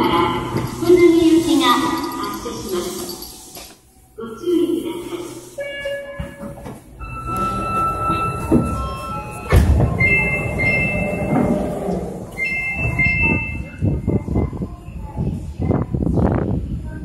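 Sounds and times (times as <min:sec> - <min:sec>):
train humming: 0:00.0 - 0:05.8, 0:06.8 - 0:15.6
steady electronic tone: 0:00.3 - 0:03.6
train doors clunking open: 0:06.2 - 0:13.6.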